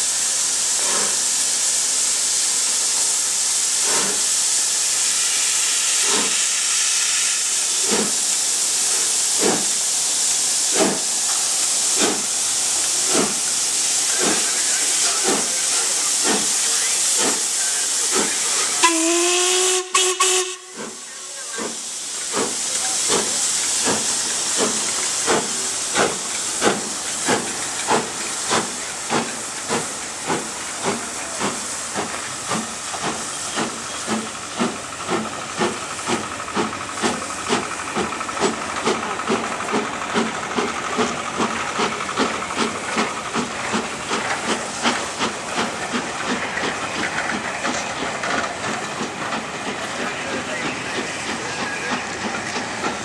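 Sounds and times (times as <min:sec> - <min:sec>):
steam hissing: 0:00.0 - 0:53.0
steam locomotive exhaust beats: 0:00.0 - 0:53.0
steam whistle blast: 0:18.8 - 0:21.0.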